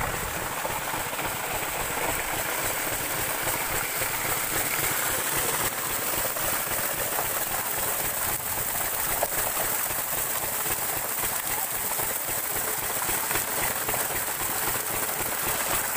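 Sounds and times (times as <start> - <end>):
diesel engine running: 0.0 - 8.6
water gushing into a tank: 0.0 - 15.9.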